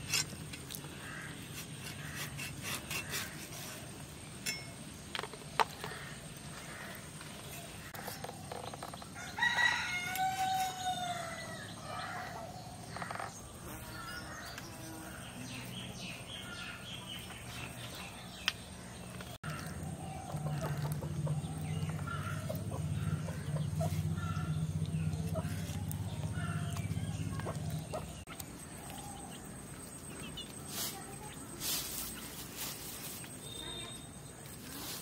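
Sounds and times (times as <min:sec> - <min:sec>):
rooster crowing: 0:09.2 - 0:12.4
chickens clucking and chirping: 0:15.6 - 0:33.4.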